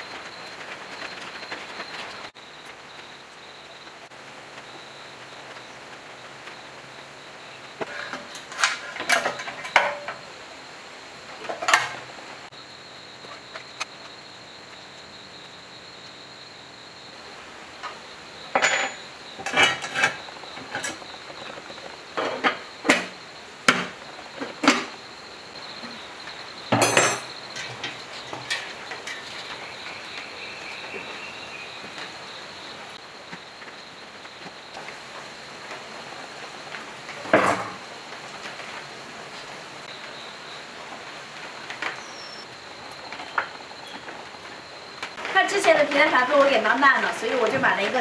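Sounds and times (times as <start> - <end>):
hand tools and metal parts clinking: 8.3 - 10.2, 18.5 - 21.0, 26.7 - 29.4.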